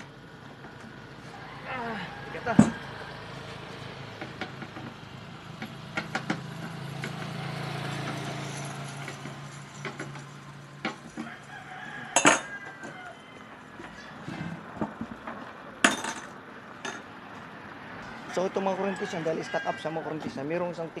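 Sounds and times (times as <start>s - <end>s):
rooster crowing: 1.1s - 3.9s, 11.1s - 14.3s, 18.0s - 20.8s.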